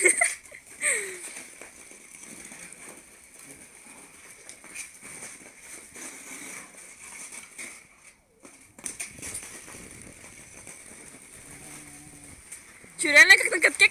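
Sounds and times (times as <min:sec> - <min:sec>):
dog paws scuffling on ice: 0:00.5 - 0:13.9
skate blades scraping on ice: 0:01.2 - 0:07.8.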